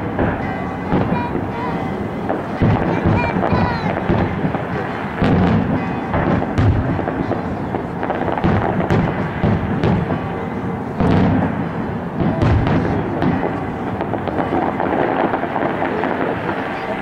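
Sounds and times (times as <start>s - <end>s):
fireworks crackling: 0.0s - 17.0s
loud fireworks bangs: 0.0s - 17.0s.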